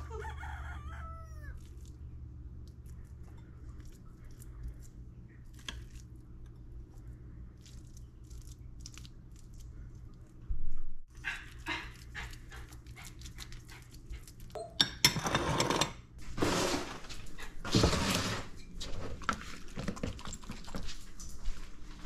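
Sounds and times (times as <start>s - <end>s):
low steady hum: 0.0s - 15.2s.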